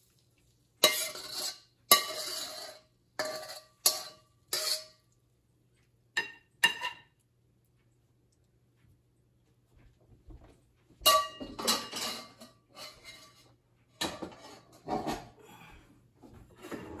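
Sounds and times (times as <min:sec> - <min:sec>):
metal spatula scraping a wok: 0:00.8 - 0:05.0, 0:11.6 - 0:15.2.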